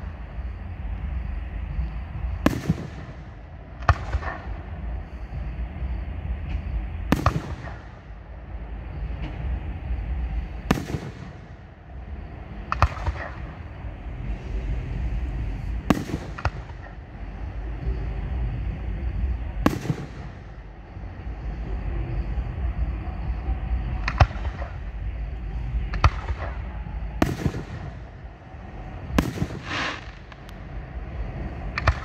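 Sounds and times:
steady low rumble: 0.0 - 32.0
fireworks bangs: 2.4 - 4.5, 7.1 - 7.9, 10.7 - 11.5, 26.0 - 28.1, 29.0 - 30.5.

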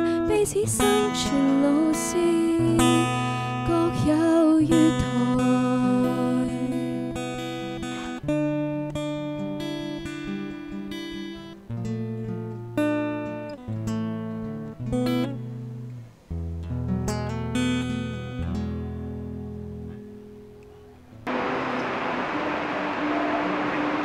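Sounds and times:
acoustic guitar strumming chords: 0.0 - 24.0.

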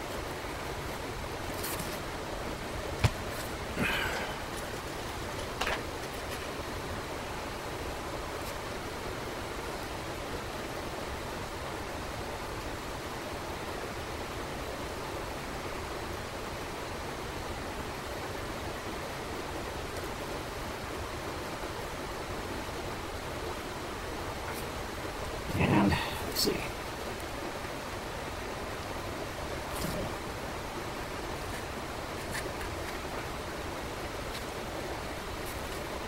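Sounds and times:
steady background hiss: 0.0 - 36.0.

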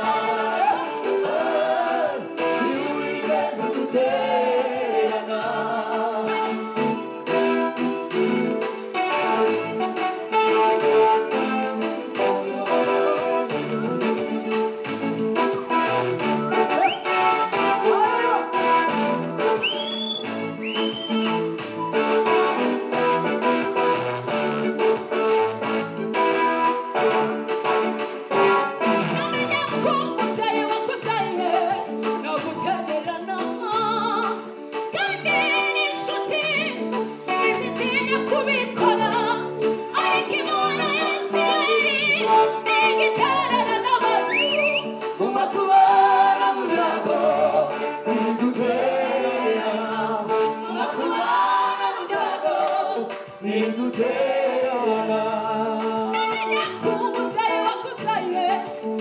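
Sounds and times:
woman singing into a microphone: 0.0 - 6.6, 29.0 - 48.6, 55.6 - 59.0
instrumental backing: 0.0 - 59.0.

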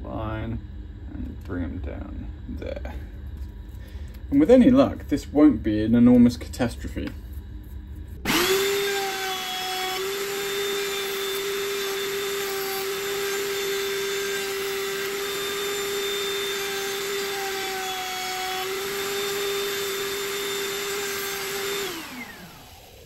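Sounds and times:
wood router whining: 8.2 - 23.0.

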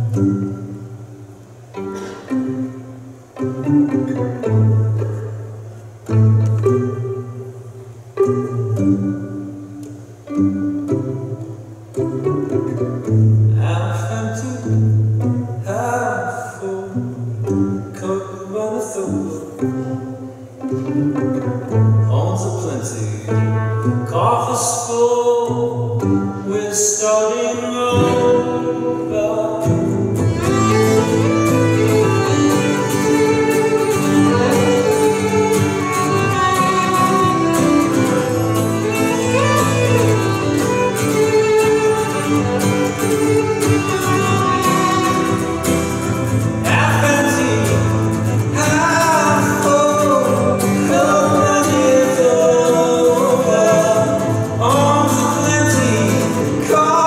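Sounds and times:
violin plucked and bowed: 0.0 - 1.0, 1.6 - 24.6, 25.2 - 57.0
strummed acoustic guitar: 0.0 - 57.0
person singing: 26.5 - 40.8, 46.6 - 57.0.

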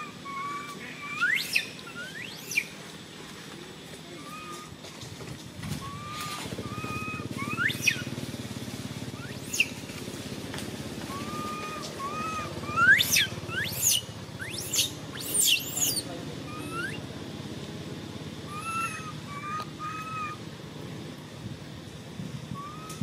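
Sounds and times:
upward-sweeping animal cries: 0.0 - 2.5, 5.8 - 8.0, 11.1 - 14.0, 18.5 - 20.4
animal whistled calls: 0.0 - 2.8, 4.2 - 4.7, 5.7 - 8.1, 9.2 - 9.8, 11.1 - 17.1, 18.5 - 20.4, 22.5 - 23.0
low steady rumble: 0.0 - 23.0.

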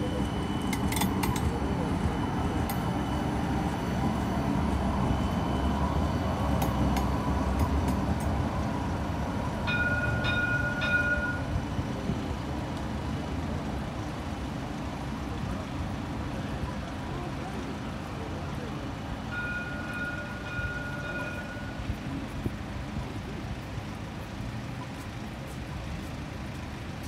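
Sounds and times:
tram bell chime: 0.0 - 12.7, 17.2 - 22.4
tram rumbling past: 0.0 - 27.0.

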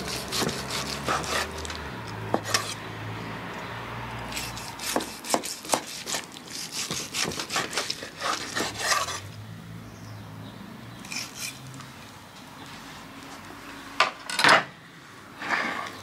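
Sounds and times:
knife slicing steak on board: 0.0 - 1.7, 4.3 - 9.2.

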